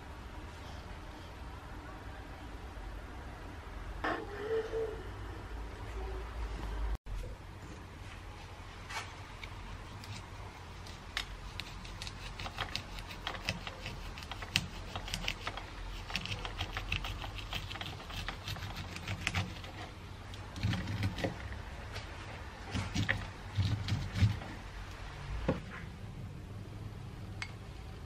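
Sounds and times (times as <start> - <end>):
knife slicing corn kernels: 11.0 - 19.9.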